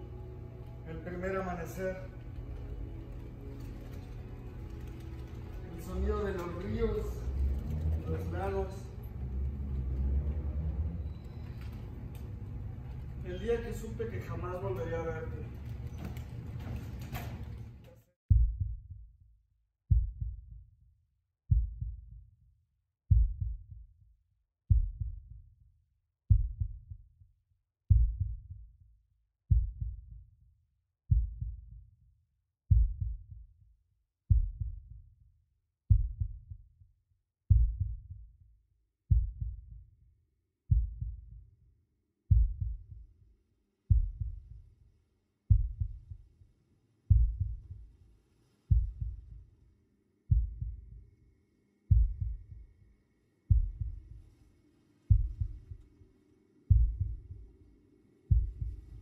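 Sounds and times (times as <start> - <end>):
deep heartbeat-like thump: 18.3 - 19.0, 19.9 - 20.5, 21.5 - 22.1, 23.1 - 23.8, 24.7 - 25.4, 26.3 - 27.0, 27.9 - 28.6, 29.5 - 30.1, 31.1 - 31.7, 32.7 - 33.3, 34.3 - 35.0, 35.9 - 36.6, 37.5 - 38.2, 39.1 - 39.8, 40.7 - 41.4, 42.3 - 43.0, 43.9 - 44.6, 45.5 - 46.2, 47.1 - 47.8, 48.7 - 49.4, 50.3 - 51.0, 51.9 - 52.6, 53.5 - 54.2, 55.1 - 55.8, 56.7 - 57.5, 58.3 - 59.0
faint low hum: 51.9 - 59.0.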